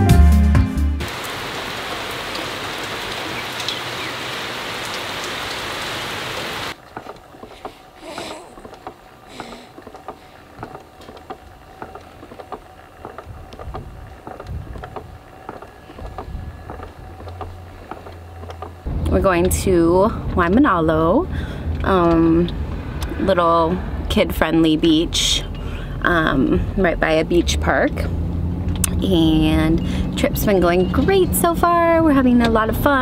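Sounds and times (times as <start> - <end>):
rain on water and patio: 1.0 - 7.1
faint ticks and rustles: 6.8 - 18.8.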